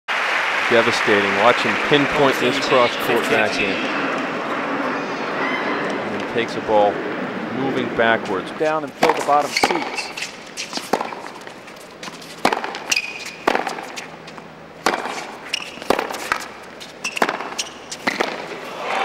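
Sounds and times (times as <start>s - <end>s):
shoe squeaks: 9.4s - 11.3s, 12.0s - 14.2s, 15.1s - 18.2s.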